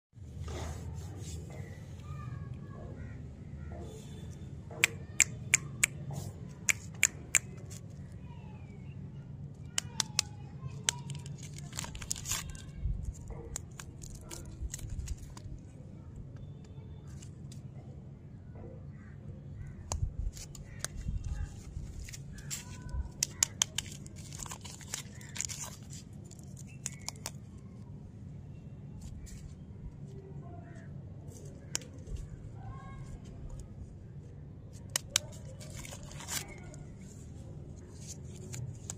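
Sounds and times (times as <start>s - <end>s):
paper wrappers crinkling and tearing: 9.8s - 15.7s, 20.3s - 27.5s, 34.8s - 38.9s.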